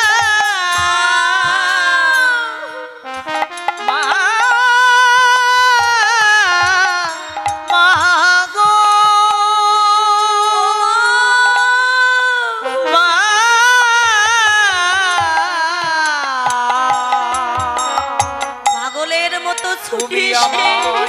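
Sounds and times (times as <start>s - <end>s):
hand-drum strokes: 0.0s - 10.0s, 14.1s - 21.0s
steady musical accompaniment: 0.0s - 21.0s
wavering devotional melody: 0.0s - 21.0s.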